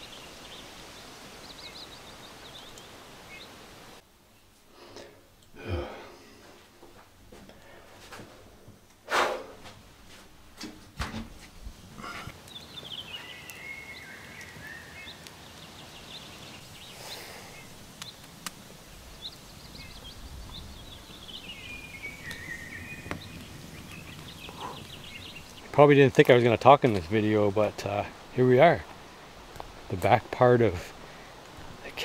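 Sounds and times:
songbirds singing: 0.0 - 4.5, 12.0 - 32.0.

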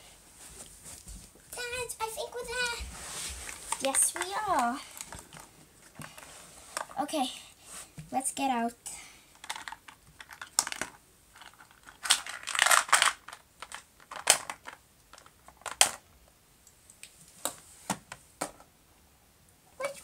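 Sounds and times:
plastic toy pieces clicking: 9.4 - 16.0.

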